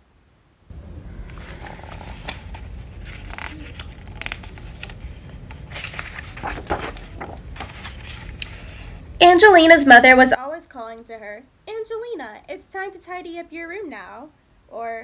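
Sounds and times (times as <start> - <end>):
paper pages rustling: 1.2 - 8.7.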